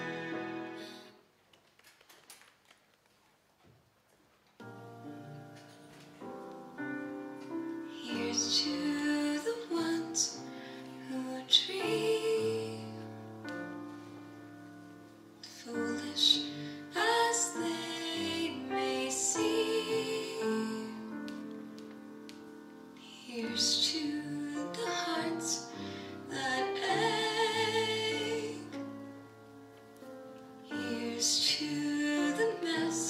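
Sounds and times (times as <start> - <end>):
soft piano-like notes: 4.6 - 33.0
woman singing: 7.9 - 13.1, 15.4 - 21.6, 23.0 - 29.0, 30.7 - 33.0.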